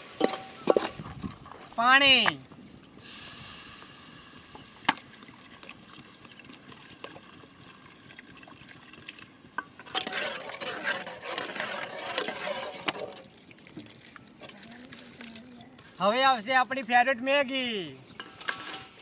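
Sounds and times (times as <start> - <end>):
ladle clinking and scraping pot: 0.0 - 1.8, 9.6 - 13.4, 18.1 - 19.0
liquid sloshing: 5.0 - 16.0
water pouring from plastic bottle: 5.0 - 16.0.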